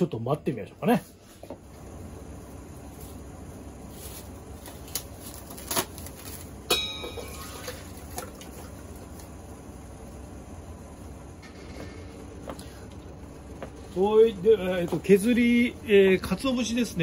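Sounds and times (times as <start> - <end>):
sharp ringing clink: 6.7 - 7.6.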